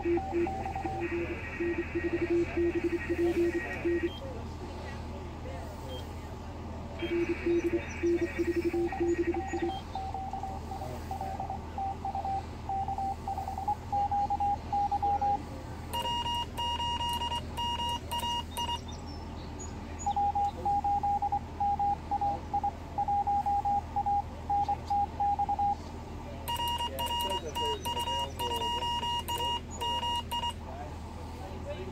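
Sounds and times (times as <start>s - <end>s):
morse code beeps: 0.0s - 4.3s, 7.0s - 19.1s, 20.0s - 25.8s, 26.5s - 30.6s
steady low hum: 0.0s - 31.9s.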